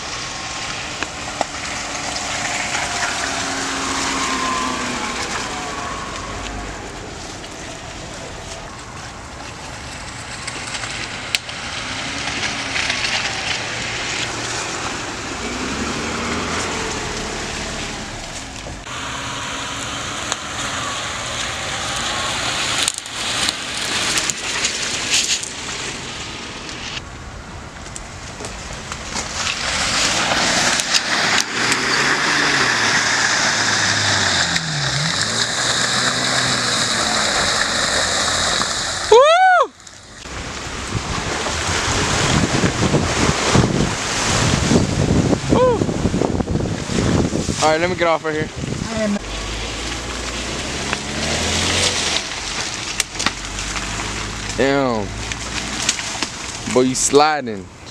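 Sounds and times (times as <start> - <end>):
car engine revving: 0.0 - 27.0, 28.8 - 57.9
crackling and clicks: 6.1 - 15.4, 21.4 - 27.0, 27.8 - 32.2, 48.6 - 57.9
tyres splattering mud: 27.8 - 57.9.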